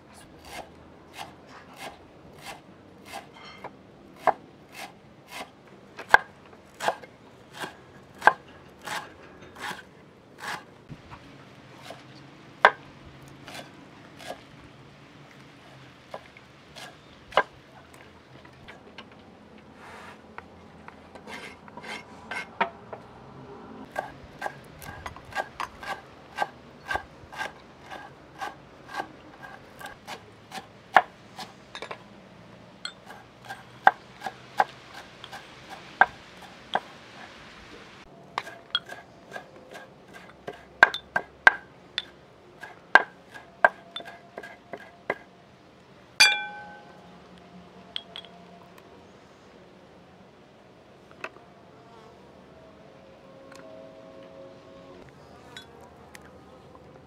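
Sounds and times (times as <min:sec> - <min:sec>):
dishware clink: 0:03.4 - 0:03.7, 0:46.2 - 0:47.0
soft hiss: 0:35.1 - 0:38.1
knife chopping on wooden board: 0:40.1 - 0:45.2.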